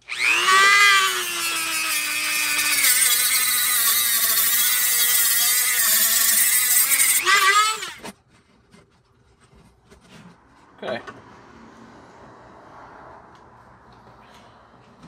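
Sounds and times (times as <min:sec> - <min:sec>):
rotary tool sanding metal pipe: 0:00.3 - 0:08.1.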